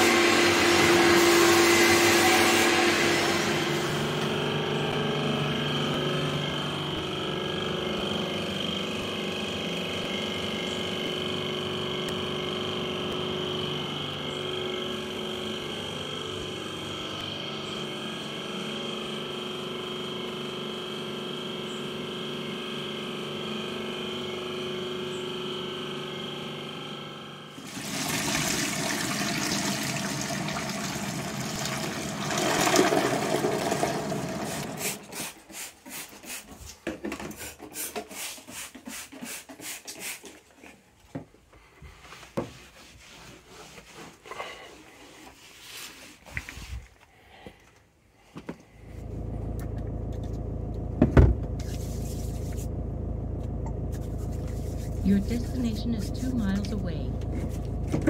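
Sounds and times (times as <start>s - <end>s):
vacuum motor whining: 0.0s - 35.1s
water gushing into a bucket: 27.6s - 35.0s.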